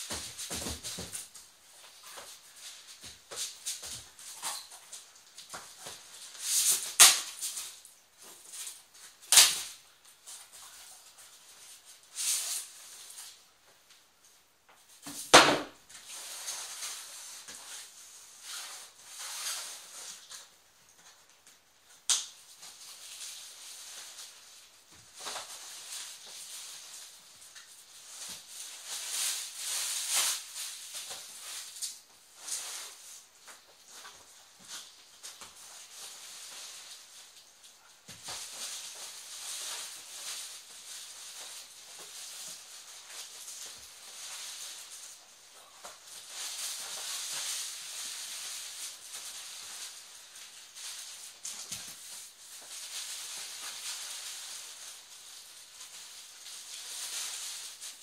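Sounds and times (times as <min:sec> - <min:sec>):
cardboard rustling and scraping: 0:00.0 - 0:07.0.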